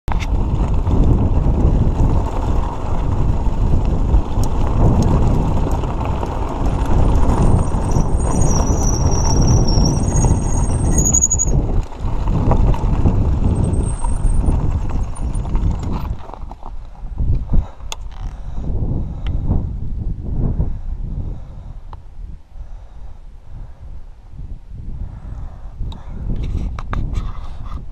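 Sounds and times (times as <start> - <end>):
bike rattling over bumps: 0.1 - 19.8
wind buffeting microphone: 0.1 - 27.9
tyres crunching on gravel: 0.2 - 17.0.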